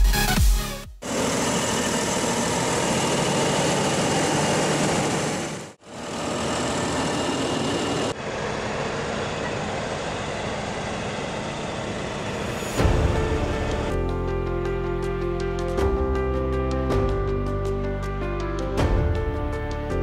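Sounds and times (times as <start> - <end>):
tractor engine running: 1.0 - 14.2.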